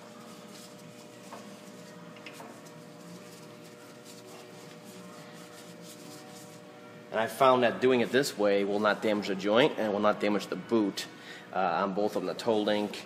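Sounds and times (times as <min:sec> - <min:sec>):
cloth rubbing on metal: 0:00.0 - 0:06.7.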